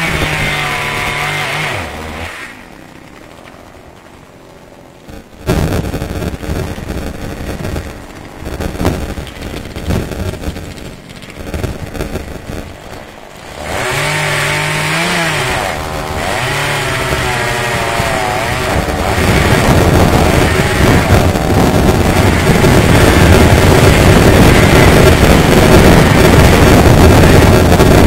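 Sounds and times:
chainsaw cutting a tree: 0.0s - 3.3s, 9.0s - 28.0s.

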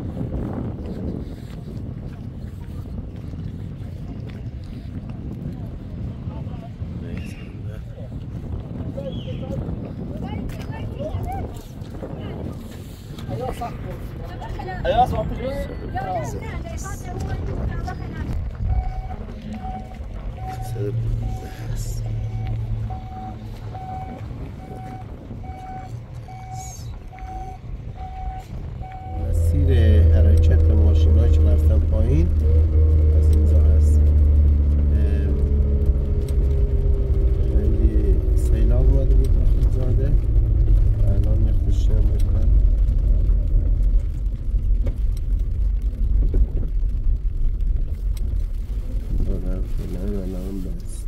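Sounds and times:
low rumble: 0.0s - 51.0s
reversing alarm beeping: 18.7s - 30.1s.

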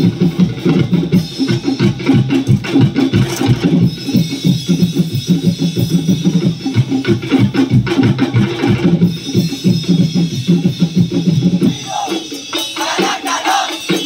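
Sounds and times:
drum-heavy dance music: 0.0s - 14.0s
group of voices shouting: 11.7s - 14.0s.

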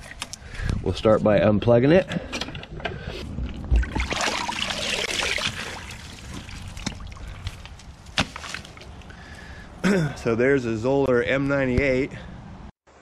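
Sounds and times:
water splashing and running off: 3.6s - 9.2s.

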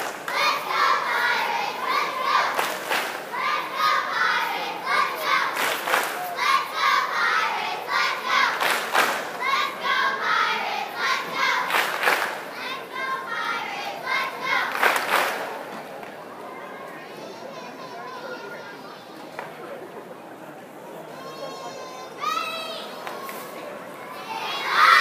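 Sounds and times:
girls shouting a cheer together: 24.3s - 25.0s.

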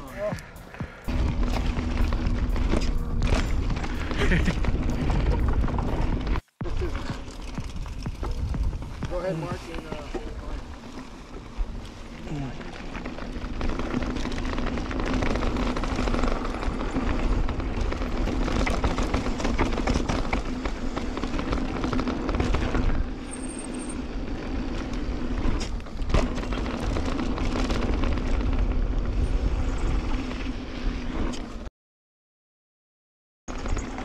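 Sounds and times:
wind and tyre noise: 0.0s - 31.7s, 33.5s - 34.0s
bike rattling and knocking: 0.2s - 29.2s, 33.5s - 34.0s.

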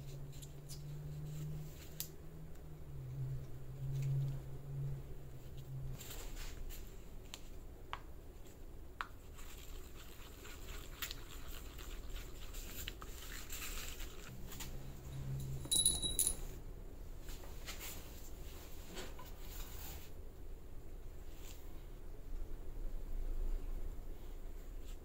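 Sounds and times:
metal pins clinking: 15.2s - 16.6s.

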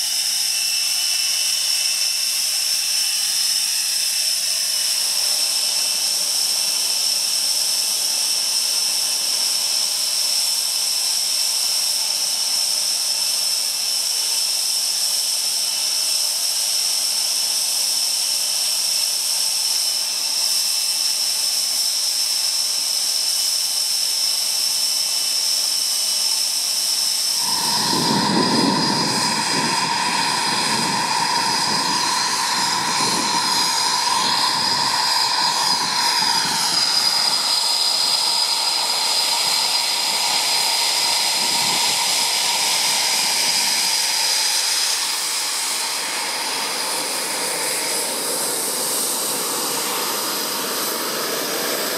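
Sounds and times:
jet engines idling whine: 0.0s - 51.9s
steady mid-pitched tone: 27.3s - 51.9s
deep jet rumble: 27.4s - 51.9s.

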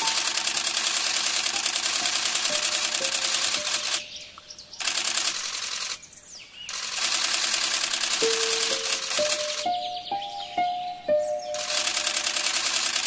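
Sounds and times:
cicadas buzzing: 0.0s - 13.0s
faint bird chirps: 2.9s - 7.4s, 8.2s - 12.6s.

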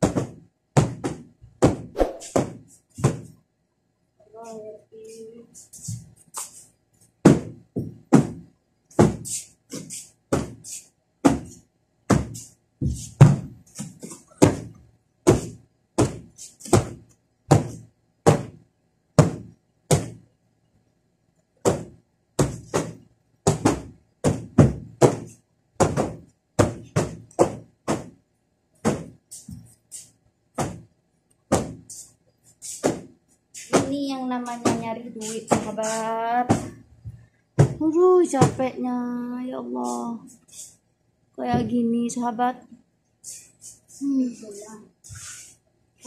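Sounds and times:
cushions being thumped: 0.0s - 3.4s, 7.2s - 9.3s, 10.3s - 10.6s, 11.2s - 18.6s, 19.2s - 20.2s, 21.6s - 28.2s, 28.8s - 29.7s, 30.6s - 30.9s, 31.5s - 31.9s, 32.8s - 33.1s, 35.5s - 38.6s.

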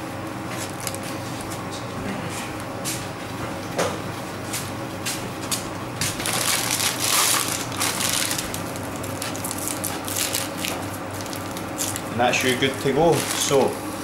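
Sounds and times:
steady low hum: 0.0s - 14.0s
plastic bag crinkling: 6.2s - 13.8s.

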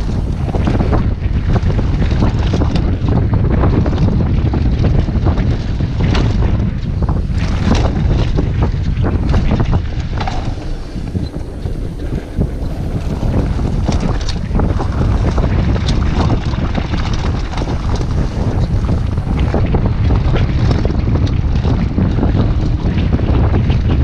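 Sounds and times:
bike clattering and rattling: 0.0s - 24.0s
bike tyres rumbling on dirt: 0.0s - 24.0s
wind buffeting microphone: 0.0s - 24.0s.

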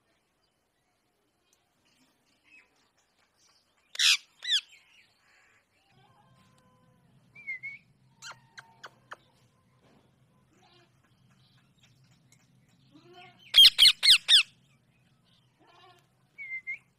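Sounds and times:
parakeet squawks: 4.0s - 4.6s, 13.5s - 14.5s.

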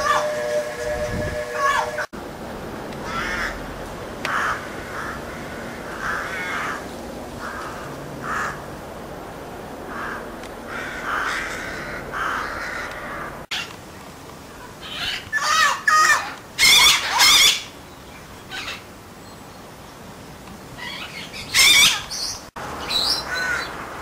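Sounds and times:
crows cawing: 3.0s - 3.6s, 4.3s - 8.7s, 9.9s - 13.6s, 23.3s - 23.8s.

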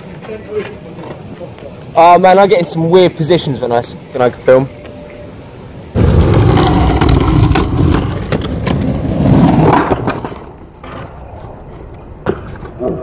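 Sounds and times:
skateboard rolling on asphalt: 5.8s - 13.0s.

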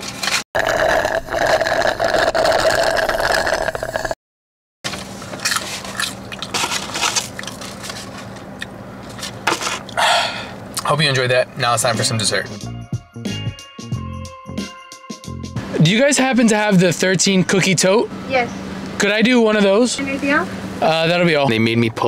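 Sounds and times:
slurping through a straw: 0.6s - 4.2s
crackling and rustling: 4.9s - 9.9s.

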